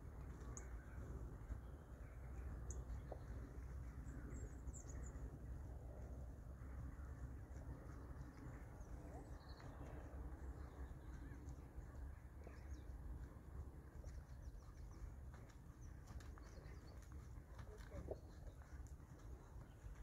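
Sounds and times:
horse hoofbeats cantering: 6.0s - 20.0s.

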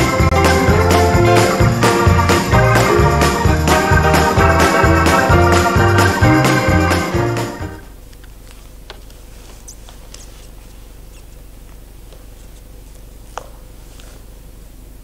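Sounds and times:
organ music: 0.0s - 7.9s
low electrical hum: 7.7s - 15.0s
paper rustling: 8.5s - 11.4s.

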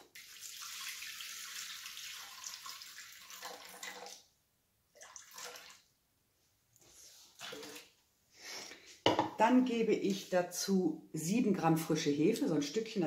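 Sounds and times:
water pouring into metal bowl: 0.0s - 4.2s, 5.0s - 5.9s.

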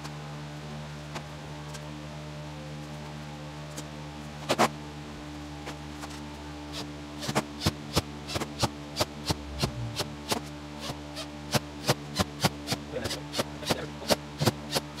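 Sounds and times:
click beat: 9.0s - 10.4s.

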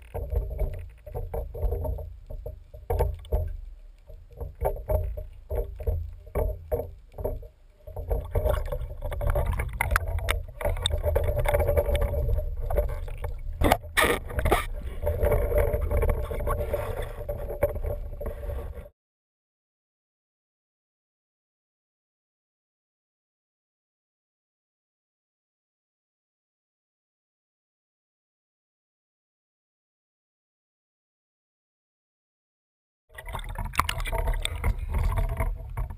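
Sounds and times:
underwater rush of water: 0.0s - 18.9s, 33.1s - 35.9s.

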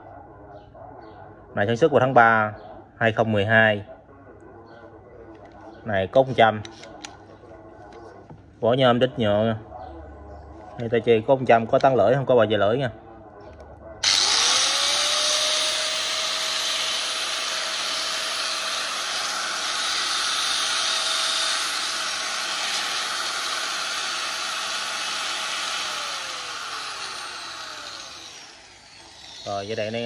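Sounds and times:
angle grinder whine: 14.0s - 30.0s.

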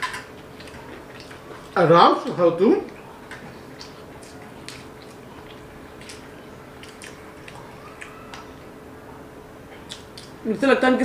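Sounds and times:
people chewing food: 0.0s - 10.4s
wet mouth clicks and smacks: 3.8s - 8.5s, 9.8s - 10.4s.

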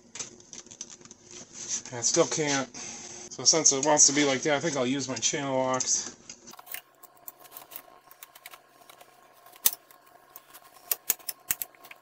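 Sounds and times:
pliers clicking and scraping metal: 5.8s - 12.0s.

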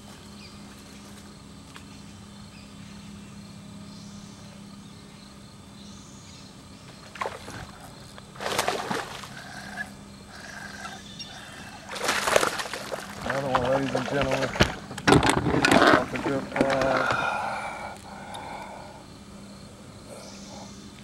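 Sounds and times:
steady low hum: 0.0s - 21.0s
water splashing: 7.1s - 9.9s, 11.8s - 14.9s.

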